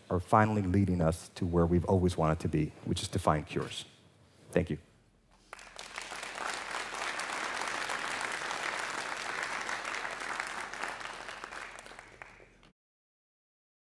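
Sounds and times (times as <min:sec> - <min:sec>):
audience applauding: 0:05.4 - 0:12.7.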